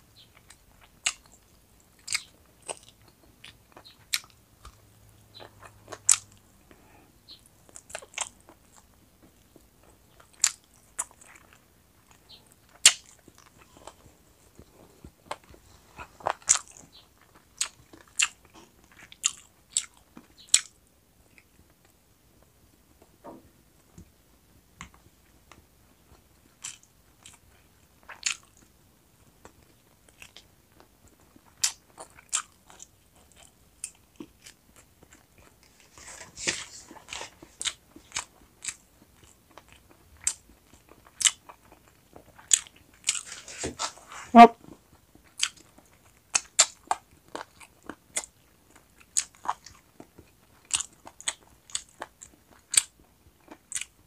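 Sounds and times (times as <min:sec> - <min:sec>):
wet chewing clicks: 0:00.2 - 0:06.8, 0:36.8 - 0:43.3, 0:44.7 - 0:54.0.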